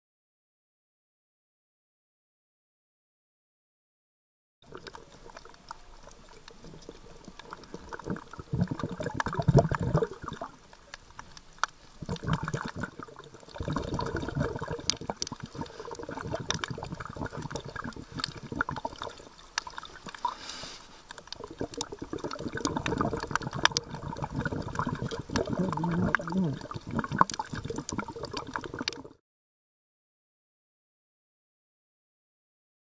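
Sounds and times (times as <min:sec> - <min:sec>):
underwater water noise: 0:04.6 - 0:29.2.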